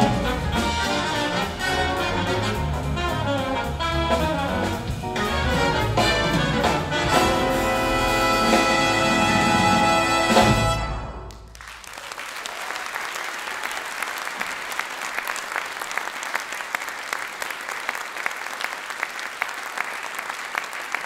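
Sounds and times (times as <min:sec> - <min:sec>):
big band final chord: 0:00.0 - 0:11.3
audience applauding: 0:11.3 - 0:21.0.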